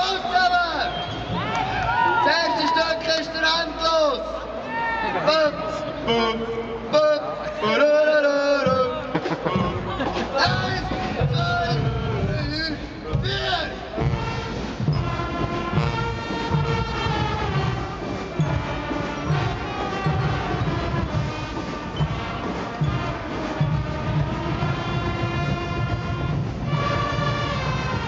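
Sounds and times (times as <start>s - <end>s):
brass bands playing chords: 5.2s - 28.0s
steady drum beat: 8.6s - 28.0s.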